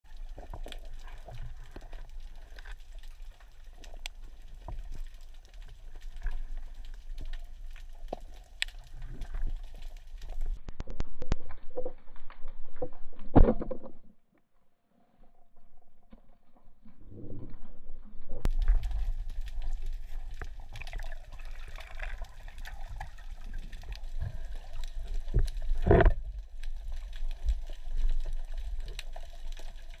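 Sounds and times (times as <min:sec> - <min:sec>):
underwater low rumble: 0:00.0 - 0:30.0
sharp clicks and crackles: 0:00.1 - 0:14.5, 0:16.0 - 0:30.0.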